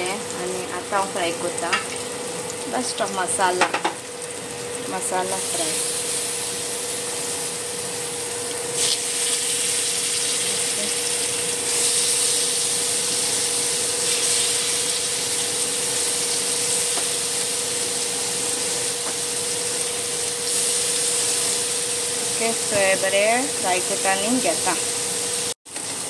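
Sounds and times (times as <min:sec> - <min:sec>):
steady hum: 0:00.0 - 0:25.2
fish sizzling in frying pan: 0:00.0 - 0:26.0.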